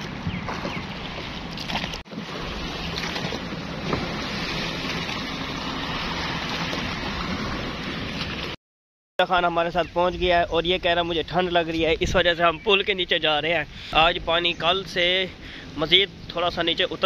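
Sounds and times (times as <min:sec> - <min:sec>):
wind on microphone: 0:00.0 - 0:04.7
boat motor running: 0:00.0 - 0:08.6
propeller churning water: 0:00.0 - 0:08.6.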